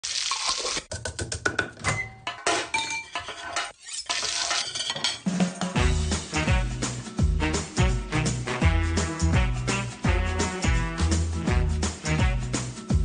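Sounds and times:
pots and utensils clinking: 0:01.9 - 0:05.8
music with beat and bass: 0:05.7 - 0:13.0.

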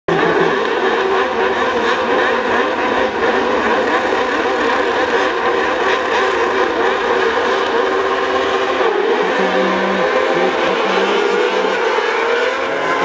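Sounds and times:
buggy engines revving: 0:00.1 - 0:13.0.

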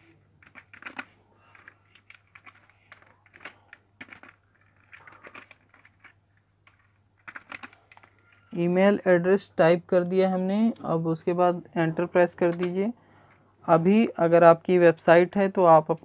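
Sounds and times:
faint keyboard typing: 0:00.0 - 0:08.6.

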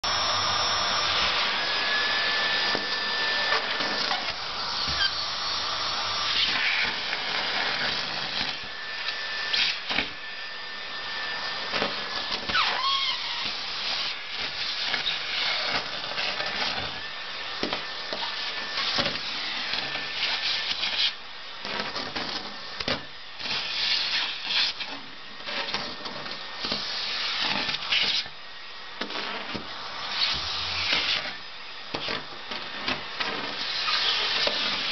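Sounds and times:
vacuum cleaner running: 0:00.0 - 0:34.9
paper crackling through hose: 0:11.8 - 0:16.9, 0:18.2 - 0:28.3.

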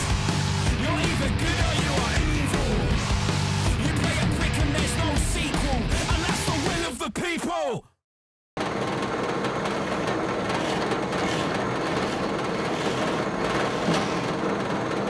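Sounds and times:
rock music: 0:00.0 - 0:07.0
drill press drilling into wood: 0:08.6 - 0:15.0.

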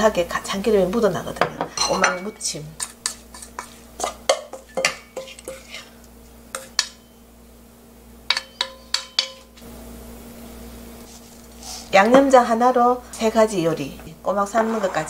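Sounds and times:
metal spoon scraping steel bowl: 0:14.4 - 0:15.0.

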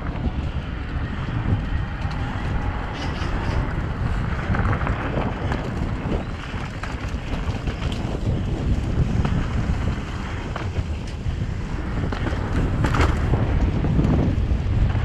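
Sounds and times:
bike clicks and rattles: 0:00.0 - 0:15.0
wind buffeting microphone: 0:00.0 - 0:15.0.

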